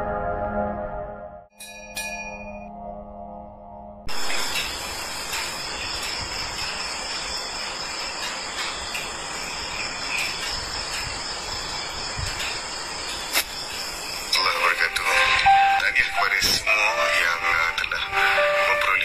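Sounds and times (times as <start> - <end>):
insects chirring: 4.1 - 19.0.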